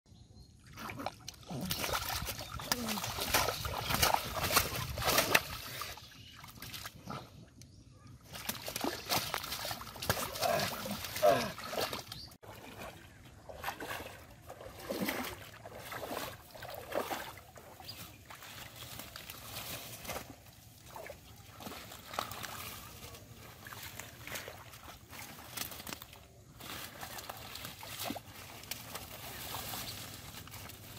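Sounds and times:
muddy water splashing: 0.6 - 30.9
wading footsteps in water: 0.6 - 30.9.

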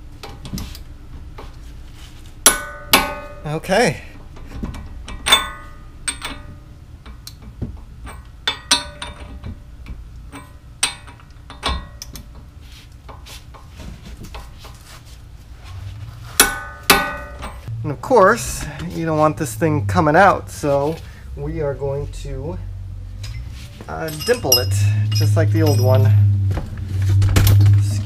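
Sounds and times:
loud ringing metal clanks: 2.4 - 3.5, 5.0 - 7.2, 8.0 - 9.5, 10.3 - 12.1, 16.4 - 17.7, 23.2 - 26.4
metal tools clinking and tapping: 4.3 - 12.5, 16.4 - 17.7, 23.2 - 26.3.

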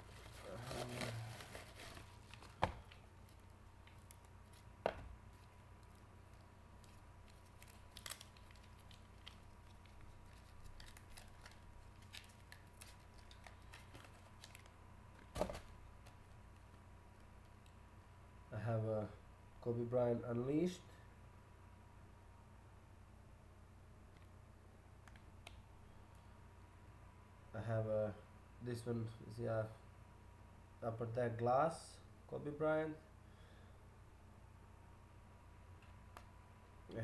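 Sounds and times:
plastic rustling and crinkling: 0.0 - 16.8.

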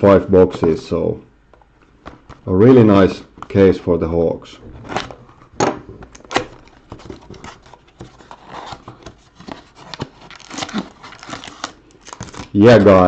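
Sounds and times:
cardboard box being opened: 6.2 - 12.5.

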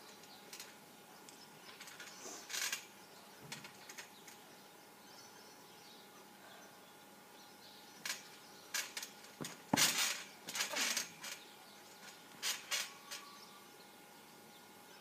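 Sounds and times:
metal springs creaking and clinking: 8.0 - 11.4
thumps on trampoline mat: 9.4 - 11.1.

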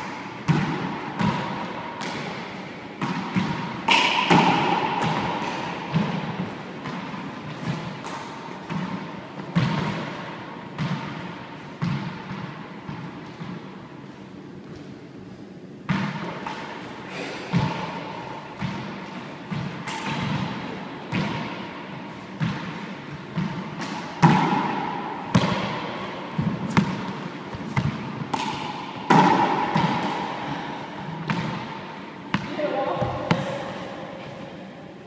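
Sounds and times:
hand slapping ball: 3.0 - 6.1, 26.7 - 30.3
rubber ball smacking court walls: 3.0 - 6.2, 23.4 - 31.7.

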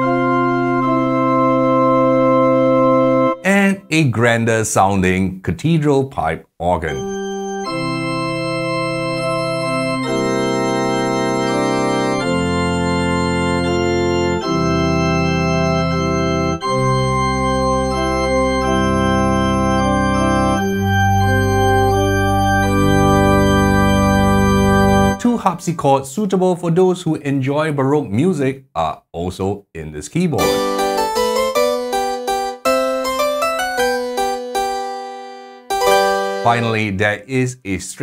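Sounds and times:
pipe organ chords: 0.0 - 4.1, 6.8 - 25.7, 30.4 - 37.2
deep organ bass notes: 0.0 - 4.8, 6.6 - 25.8, 30.4 - 37.4.

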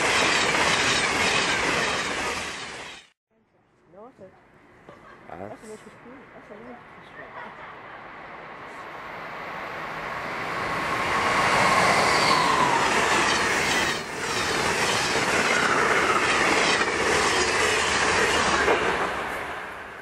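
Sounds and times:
train passing at speed: 0.0 - 3.1, 6.5 - 20.0.

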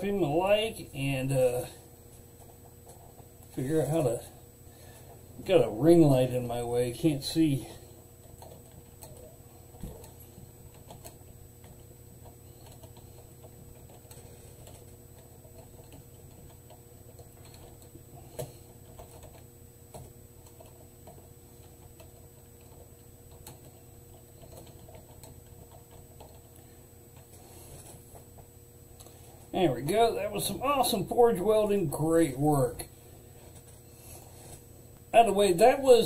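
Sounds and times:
faint electrical hum: 0.0 - 36.0
typing on a keyboard: 12.6 - 14.8, 21.9 - 26.4.

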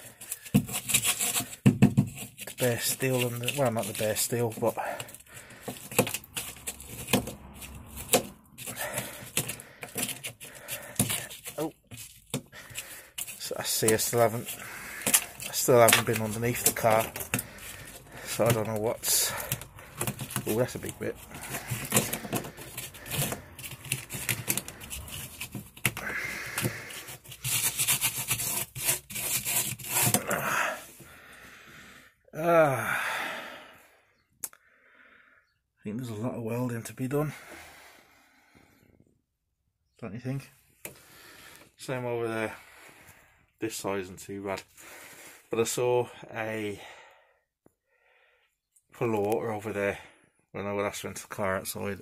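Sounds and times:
sharp clicks and knocks: 5.0 - 12.5.

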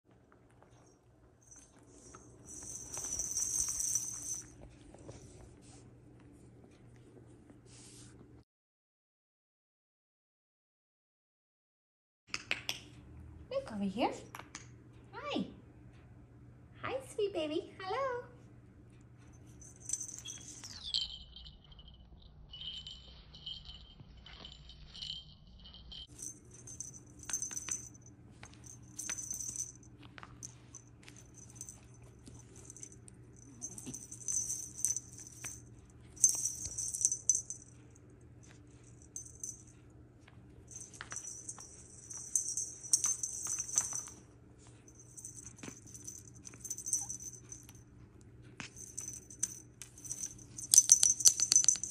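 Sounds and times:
small jingle bells jingling: 0.6 - 5.2, 19.2 - 39.8, 40.7 - 47.9, 48.6 - 51.9.

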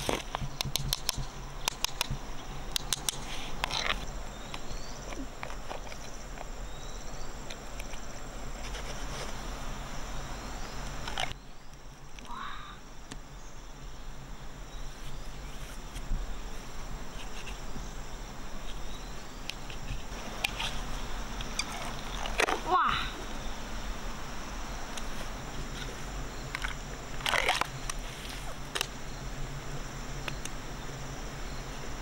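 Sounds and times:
insects chirping: 0.0 - 32.0.

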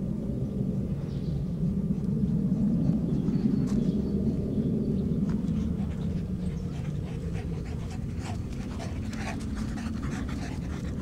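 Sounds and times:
steady low rumble: 0.0 - 11.0
dog panting: 5.5 - 11.0.

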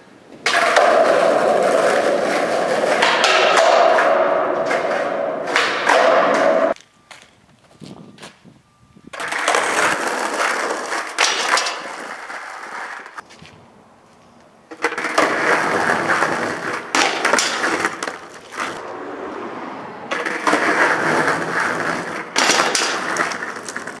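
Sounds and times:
skateboard wheels on concrete: 0.0 - 24.0
skateboard clacks and knocks: 0.4 - 7.2, 9.1 - 13.2, 14.7 - 18.8, 20.1 - 24.0.

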